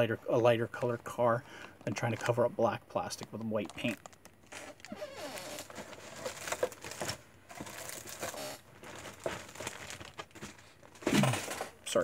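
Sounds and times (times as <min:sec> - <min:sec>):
plastic rustling: 0:00.5 - 0:12.0.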